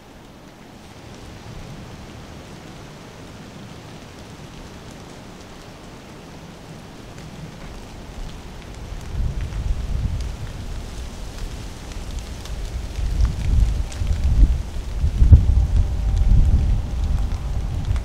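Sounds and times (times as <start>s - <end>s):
rain dripping through trees: 0.0s - 18.0s
low rumble: 12.1s - 18.0s.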